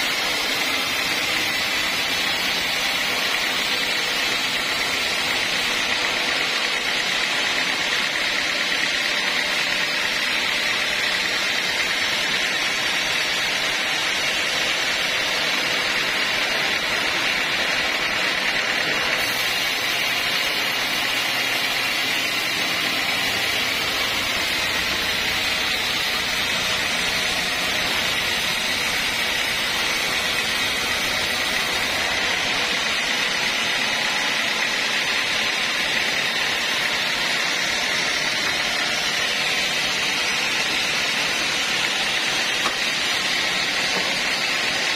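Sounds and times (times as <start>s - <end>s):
band saw cutting log: 0.0s - 44.9s.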